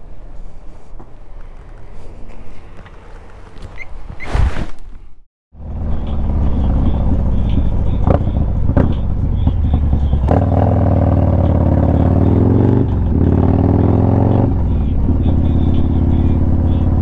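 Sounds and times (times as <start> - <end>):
motorcycle engine revving: 5.5 - 17.0.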